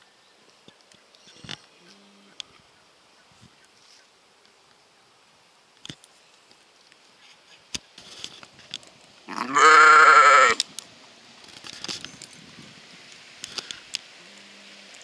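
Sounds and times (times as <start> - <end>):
sheep bleating: 9.3 - 10.6.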